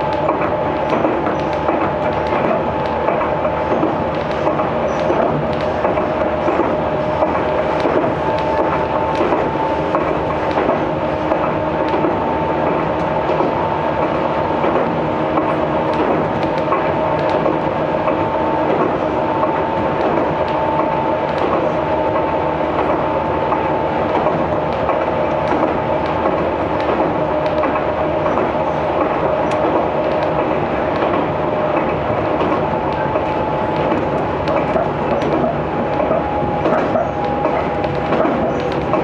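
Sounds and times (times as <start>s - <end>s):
train motor whine: 0.0s - 39.0s
train running rumble: 0.0s - 39.0s
wheels clicking over rails: 0.0s - 39.0s.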